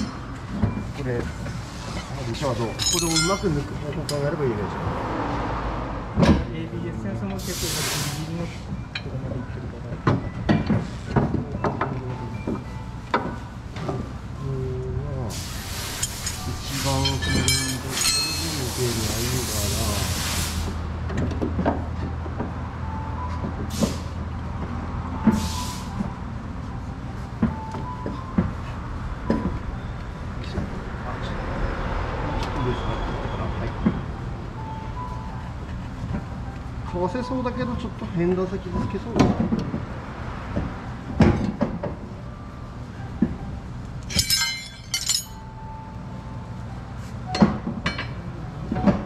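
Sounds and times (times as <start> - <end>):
metal parts clinking and knocking: 2.7 - 3.7, 15.9 - 18.6, 44.0 - 45.5
air hissing: 7.4 - 8.6, 15.3 - 20.8
low workshop hum: 13.7 - 19.5, 43.9 - 45.7.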